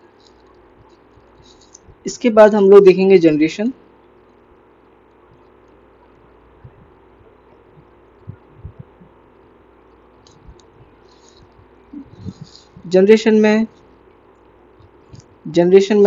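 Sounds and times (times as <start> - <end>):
faint microphone hum and hiss: 0.0 - 16.0
soft faint thumps: 6.6 - 9.2.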